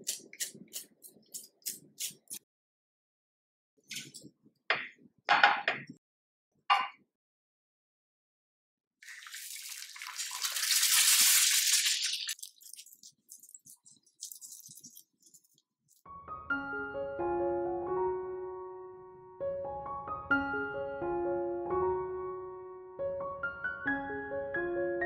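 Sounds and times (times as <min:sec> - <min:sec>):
egg sizzling in a frying pan: 0:09.0 - 0:15.6.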